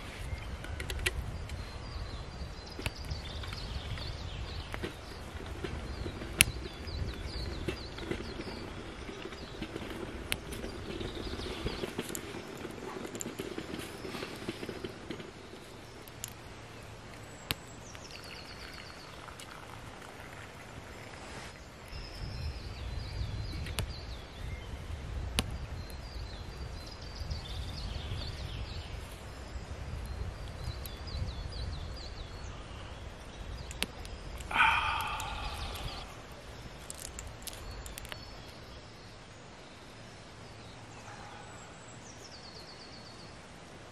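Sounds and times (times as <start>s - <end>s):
songbirds chirping: 0.0s - 43.9s
wood fire crackling: 4.6s - 21.9s, 33.2s - 38.8s.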